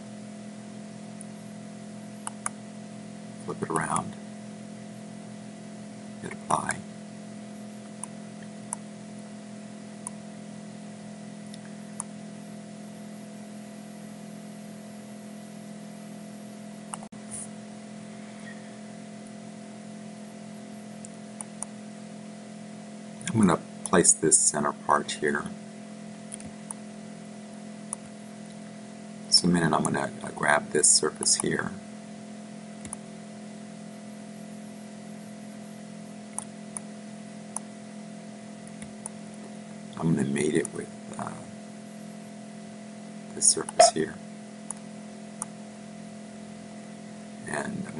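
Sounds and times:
electrical hum and hiss: 0.0 - 47.9
computer mouse clicks: 2.2 - 2.6, 7.9 - 8.9, 21.0 - 21.8, 26.3 - 26.8, 32.8 - 33.0, 36.3 - 36.9
faint computer mouse clicks: 32.8 - 33.0.

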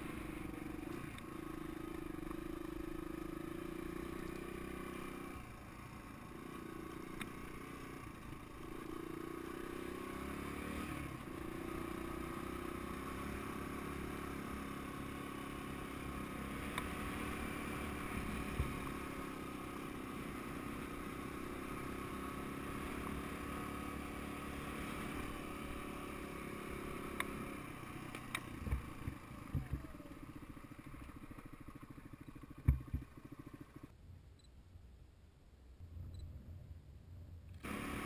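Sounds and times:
dirt bike engine running: 0.0 - 34.0, 37.6 - 38.0
sharp knocks: 32.6 - 33.1.

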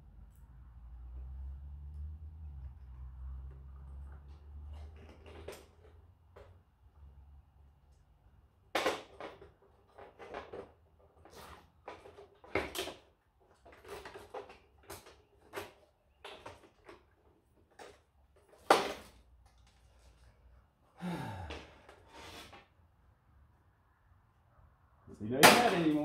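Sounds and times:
plastic parts clicking and rattling: 4.7 - 6.6, 8.7 - 20.2.

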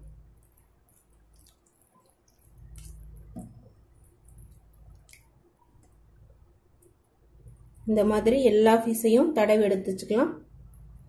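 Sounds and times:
wet squishing of paste: 0.3 - 6.3.

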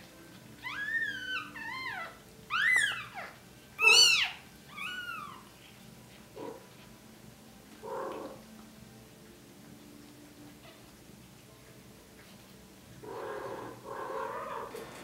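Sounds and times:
kitten mewing: 3.8 - 5.4.

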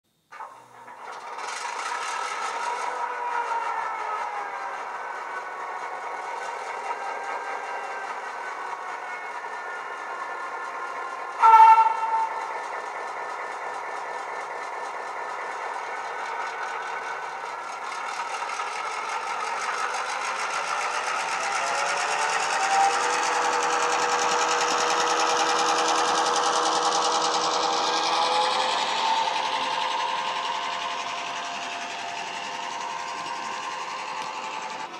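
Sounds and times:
diesel engine idling and revving: 1.3 - 34.9
locomotive horn blast: 11.4 - 12.5.

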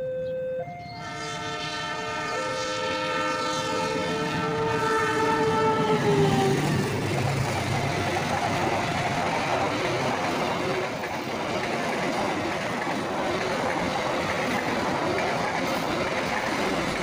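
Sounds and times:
locomotive horn blast: 0.9 - 7.0
passing train rumble: 0.9 - 17.0.

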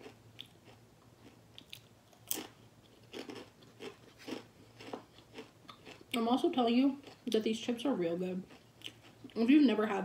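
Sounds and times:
crunchy chewing of chips: 0.0 - 6.3, 8.4 - 9.5.

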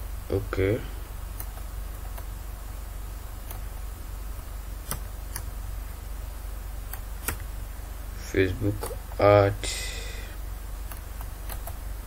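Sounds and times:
steady low hum: 0.0 - 12.0
computer mouse clicks: 10.9 - 11.8.

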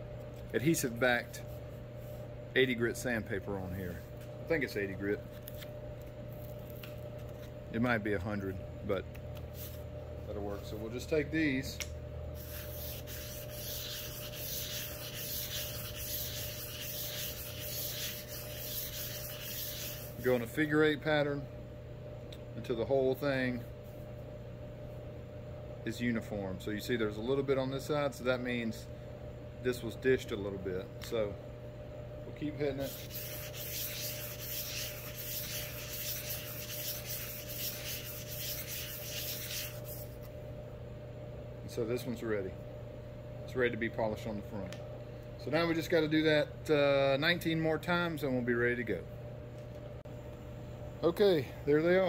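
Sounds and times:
scratchy rasp on sandpaper: 12.4 - 20.5, 32.8 - 40.2.

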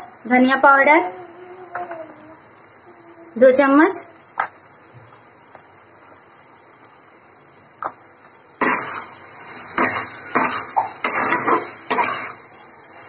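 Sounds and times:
frying sizzle: 0.0 - 13.0
metal spatula scraping a pan: 8.6 - 13.0.

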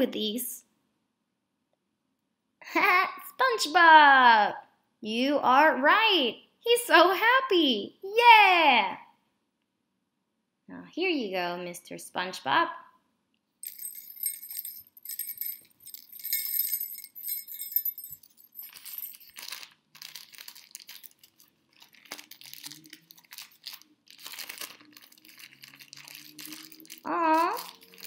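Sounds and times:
small jingle bells jingling: 13.6 - 23.8
wrapping paper rustling and tearing: 18.7 - 28.0.

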